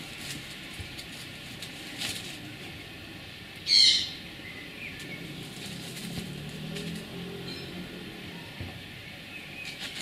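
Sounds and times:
rustle against twigs and straw: 0.0s - 10.0s
loud bird call: 3.6s - 4.2s.

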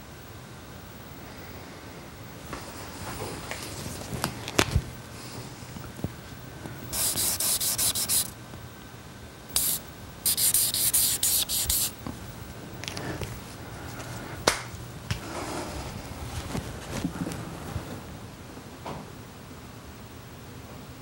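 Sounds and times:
marker rubbing on plastic sheet: 6.9s - 8.3s, 9.6s - 11.9s.

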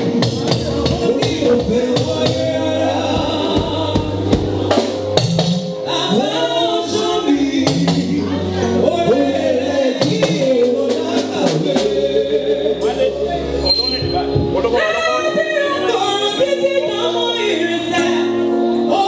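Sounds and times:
drum kit with cymbals: 0.0s - 14.7s
choir singing gospel: 0.0s - 19.0s
sustained bass notes: 0.0s - 19.0s.

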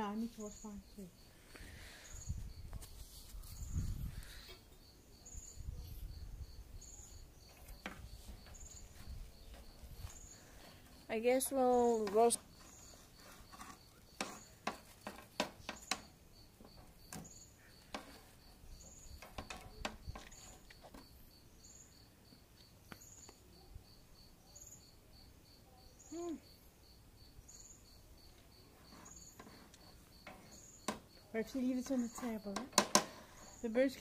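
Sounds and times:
crickets chirping: 0.0s - 34.0s
metal poker stirring coals: 7.4s - 21.1s, 28.7s - 34.0s.

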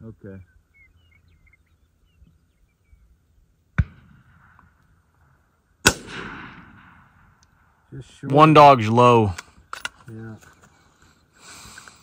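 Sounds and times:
rolling echo: 3.7s - 7.9s
rifle shots: 3.8s - 4.8s, 5.8s - 7.4s.

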